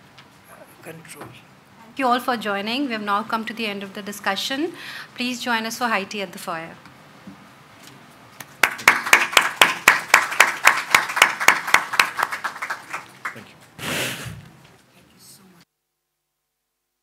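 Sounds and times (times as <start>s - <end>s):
audience applauding: 8.6s - 13.9s
brief rush of noise: 13.8s - 14.5s.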